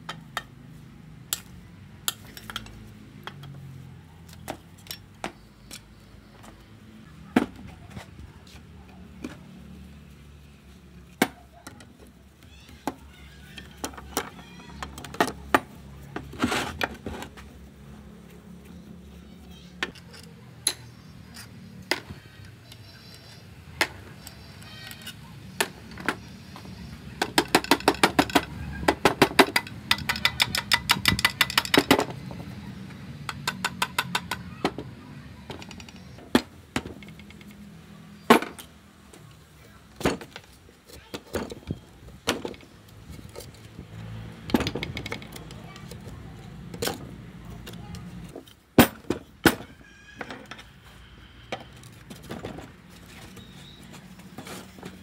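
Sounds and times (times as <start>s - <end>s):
hand tools knocking on metal: 27.2s - 32.5s, 33.2s - 37.5s, 44.4s - 46.0s.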